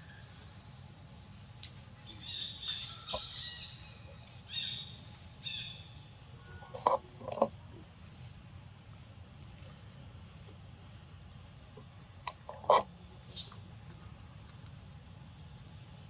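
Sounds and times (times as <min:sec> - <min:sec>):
harsh squawking bird calls: 0:02.1 - 0:05.9.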